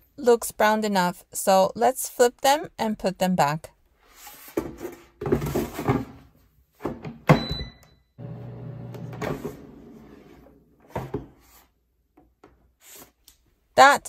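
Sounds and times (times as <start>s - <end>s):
air fryer humming: 8.2s - 9.5s.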